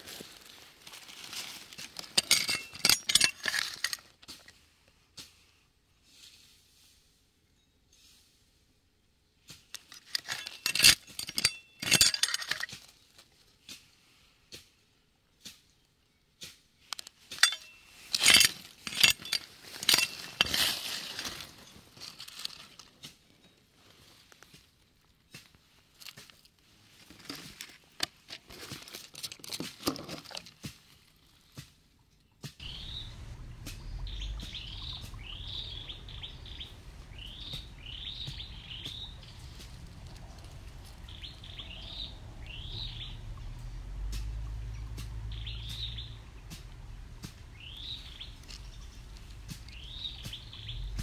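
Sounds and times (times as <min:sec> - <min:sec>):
dry leaves crackling: 0:00.0 - 0:04.2, 0:17.1 - 0:23.0, 0:32.6 - 0:51.0
stones clicking and crunching: 0:00.1 - 0:04.5, 0:09.7 - 0:13.2, 0:16.9 - 0:23.0, 0:25.4 - 0:31.2, 0:32.6 - 0:42.1, 0:46.5 - 0:51.0.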